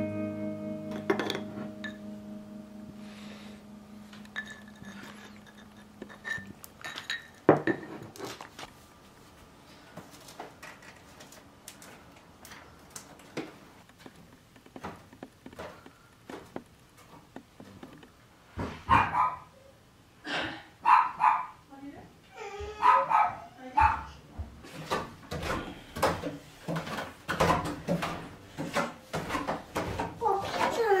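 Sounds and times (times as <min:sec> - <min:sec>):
spoon clinking against ceramic cup: 0:04.2 - 0:07.8
dog barking: 0:18.9 - 0:19.5, 0:20.8 - 0:21.6, 0:22.8 - 0:24.2.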